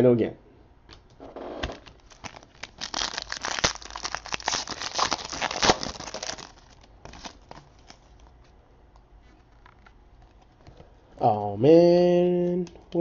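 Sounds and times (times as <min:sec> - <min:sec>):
foil wrapper crinkling and tearing: 0:01.8 - 0:08.3.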